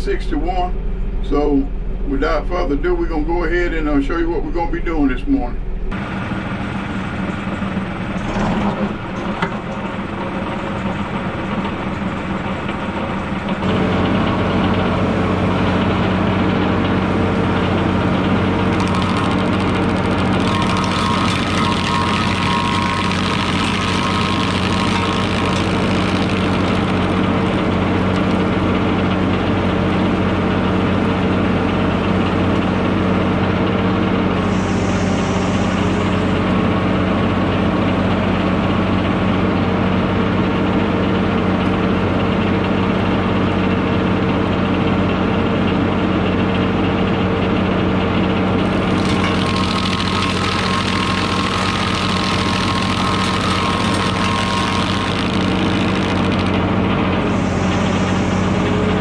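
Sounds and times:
tractor engine under load: 5.8s - 59.0s
stump grinder cutting hiss: 17.2s - 29.1s, 34.3s - 37.5s, 48.6s - 59.0s.

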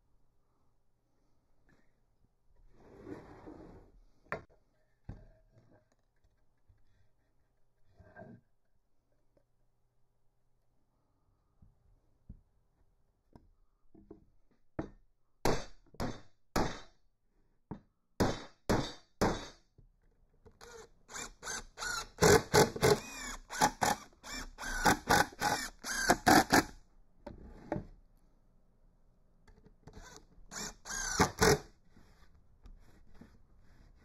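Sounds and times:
hammer striking wood: 15.4s - 16.9s, 18.2s - 19.6s.

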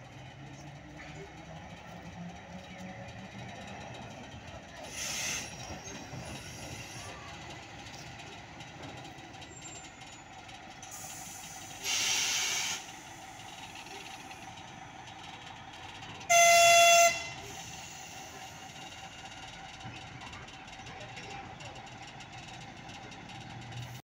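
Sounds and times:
diesel locomotive engine hum: 0.0s - 24.0s
locomotive horn blast: 16.2s - 17.7s.

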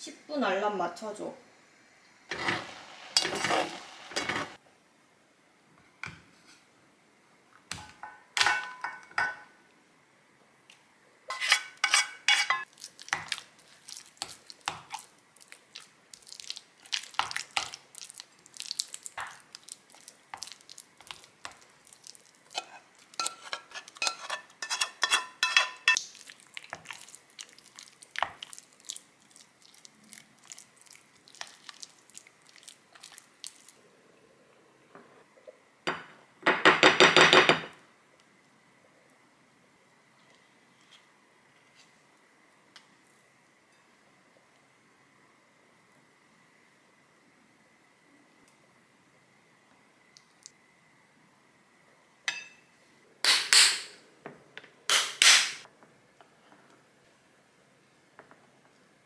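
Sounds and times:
spatula scraping and clinking bowls: 2.3s - 4.6s, 11.3s - 13.4s, 22.5s - 26.0s.

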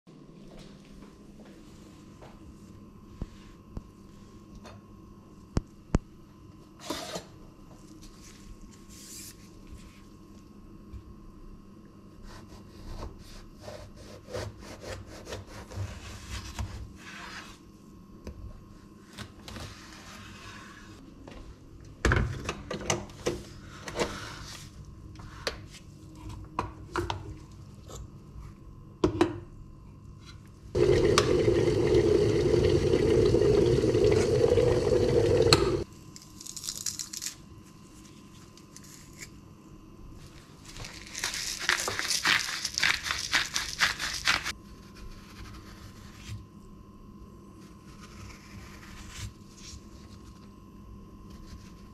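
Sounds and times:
running water: 30.8s - 35.8s.

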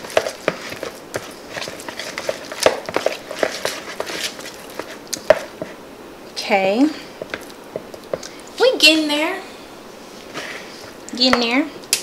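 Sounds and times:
fork scraping plastic bowl: 0.0s - 5.8s.

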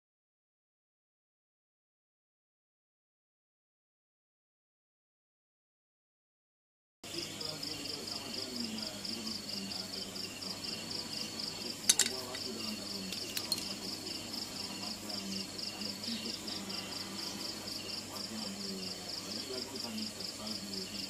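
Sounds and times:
insects chirping in a rapid trill: 7.1s - 21.0s.

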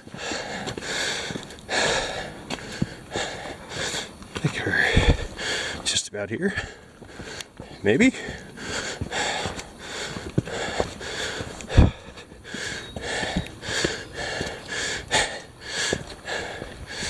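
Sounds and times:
footsteps on rock: 0.0s - 5.9s, 6.5s - 17.0s
person breathing hard: 0.0s - 5.9s, 6.5s - 17.0s.

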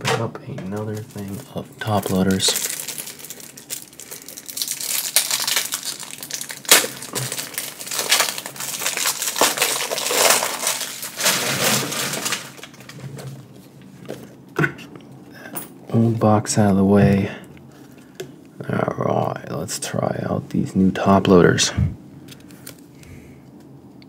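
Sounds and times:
plastic packaging crinkling: 0.6s - 14.3s.

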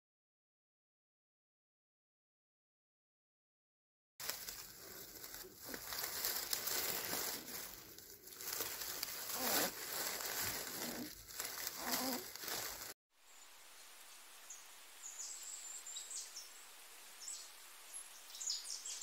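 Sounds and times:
newspaper crinkling and rustling: 4.2s - 13.0s.

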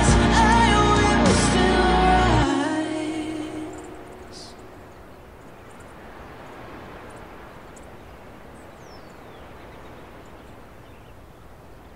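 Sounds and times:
outdoor background noise: 2.0s - 11.9s
faint bird chirps: 3.6s - 11.9s.

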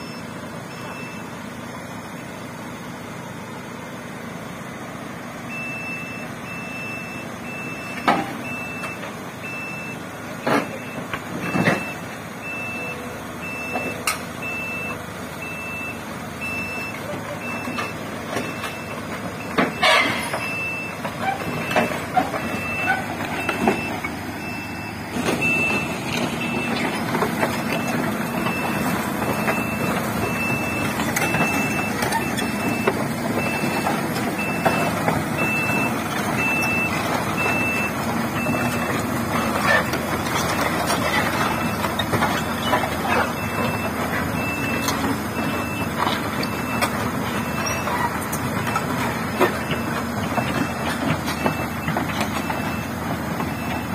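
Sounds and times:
excavator alarm beeping: 0.0s - 2.4s, 5.4s - 53.9s
diesel engine running: 0.0s - 53.9s
steel tracks clanking: 18.4s - 37.8s.

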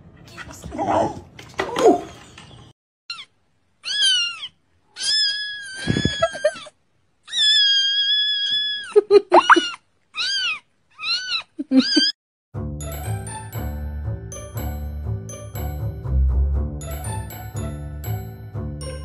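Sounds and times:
kitten mewing: 7.3s - 12.1s.

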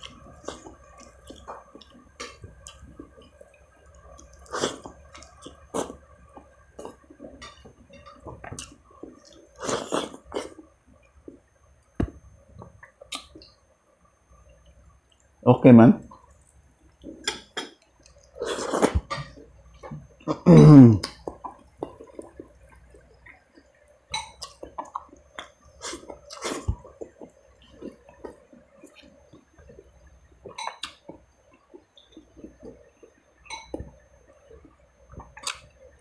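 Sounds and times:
faint steady hum: 0.0s - 36.0s
wet chewing and lip-smacking: 12.8s - 13.6s, 16.9s - 19.2s, 21.0s - 29.8s, 30.4s - 33.8s
man's voiced sound falling in pitch: 20.3s - 21.1s.

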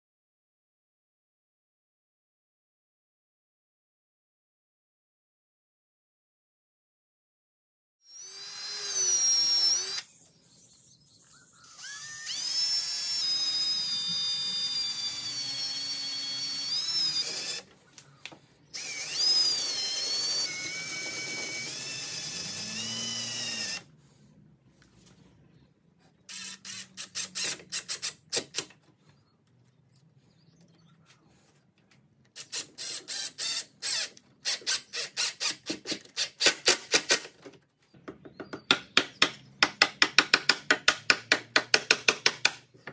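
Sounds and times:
cordless drill boring into wood: 8.1s - 10.6s, 11.6s - 17.7s, 18.6s - 23.9s, 26.3s - 28.6s, 32.4s - 37.3s.

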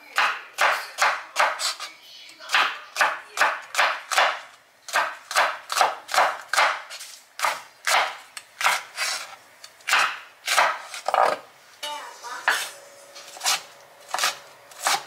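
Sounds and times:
knife slicing on cutting board: 12.5s - 15.0s.

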